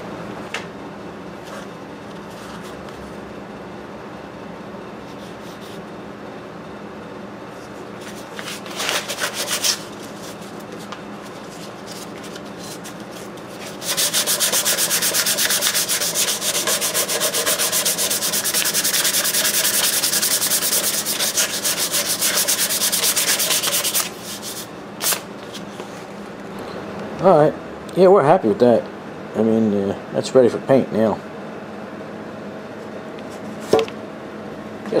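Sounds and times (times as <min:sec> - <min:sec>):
sandpaper sanding strokes: 0:08.4 - 0:10.4, 0:13.6 - 0:24.7.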